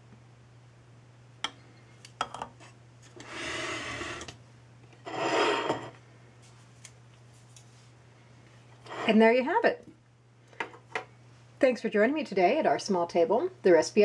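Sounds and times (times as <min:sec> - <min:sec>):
plate scraping across countertop: 0:02.6 - 0:04.4, 0:05.0 - 0:06.0, 0:08.8 - 0:09.2.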